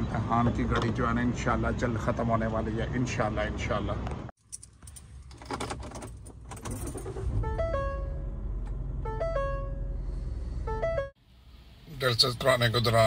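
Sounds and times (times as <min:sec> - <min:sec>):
keys jangling: 0:04.4 - 0:07.0
car engine starting and idling: 0:04.6 - 0:13.0.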